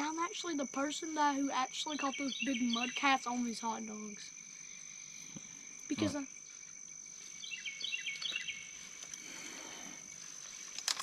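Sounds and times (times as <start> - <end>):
insects droning: 0.0 - 11.0
bird singing falling notes: 7.4 - 8.7.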